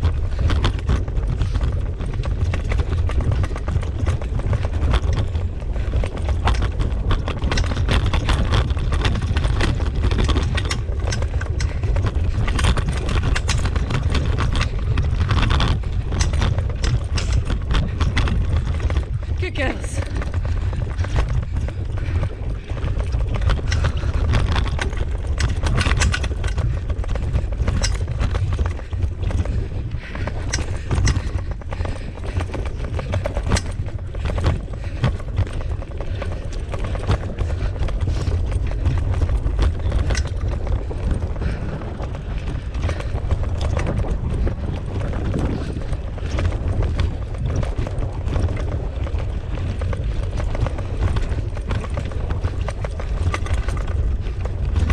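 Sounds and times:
rattles and knocks: 0.0 - 54.9
wheels rolling over dirt trail: 0.0 - 54.9.

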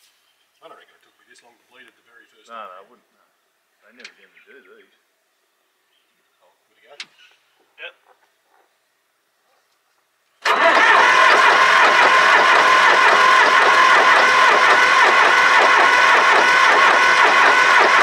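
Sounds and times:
diesel engine cranking on starter: 10.4 - 18.0.

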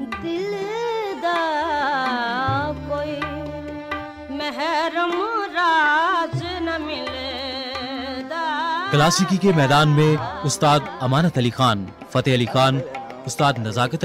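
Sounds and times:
person singing ornamented phrases: 0.0 - 14.0
tabla strokes: 0.0 - 14.0.

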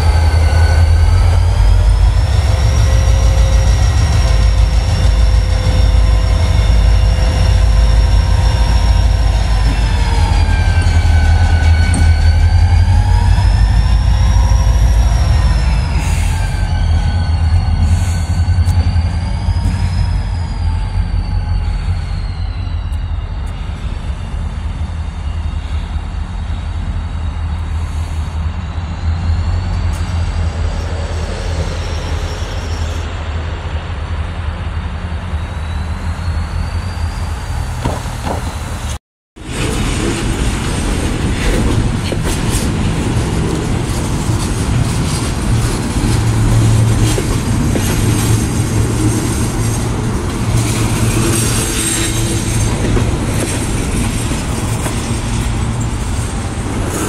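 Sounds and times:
high-pitched wheel squeals: 0.0 - 33.4, 35.0 - 39.0, 41.5 - 57.0
train wheels clattering over rails: 37.7 - 57.0.

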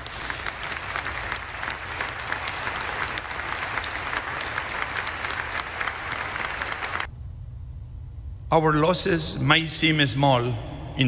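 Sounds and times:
crowd applauding: 0.0 - 7.1.

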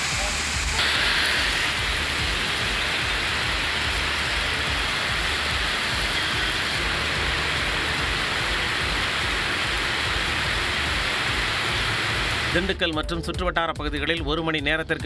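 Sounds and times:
heavy rain on a road: 0.0 - 12.7.

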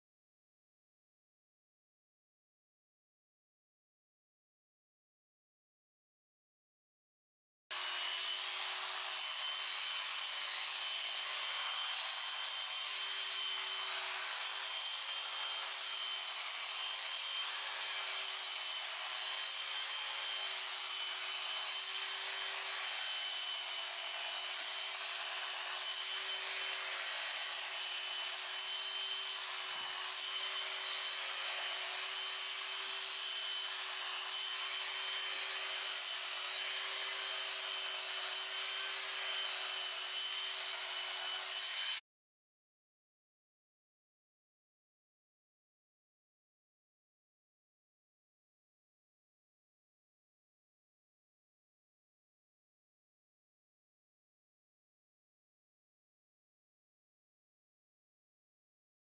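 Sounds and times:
electric shears humming: 7.8 - 42.0.

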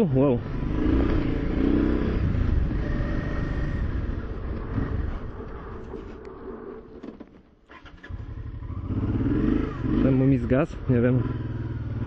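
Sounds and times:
motorcycle engine running low: 7.8 - 12.0.

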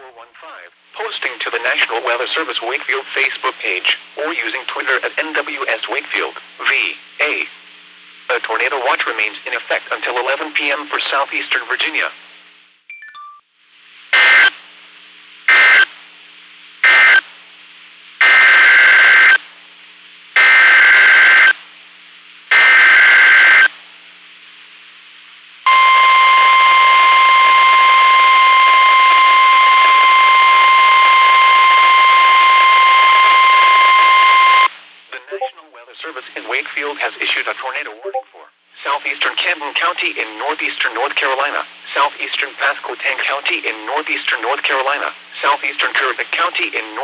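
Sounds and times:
steady warning alarm tone: 25.7 - 34.7.

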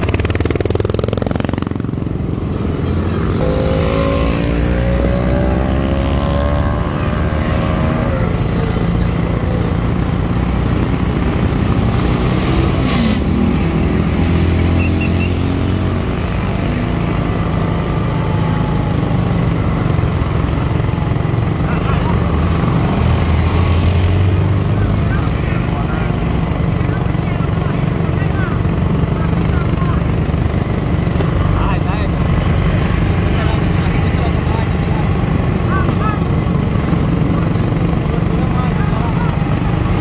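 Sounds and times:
engine revving: 0.0 - 40.0.

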